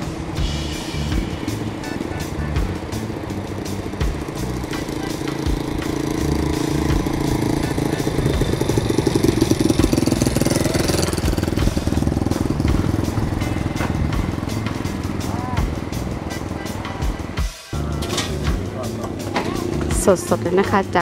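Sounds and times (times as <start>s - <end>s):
small motorcycle engine puttering: 1.0s - 17.1s.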